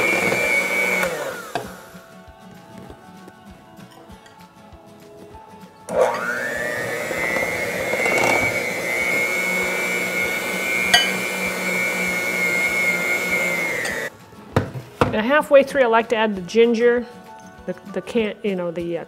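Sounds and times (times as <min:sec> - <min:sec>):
electric hand mixer whining: 0:00.0 - 0:02.0, 0:05.9 - 0:14.1.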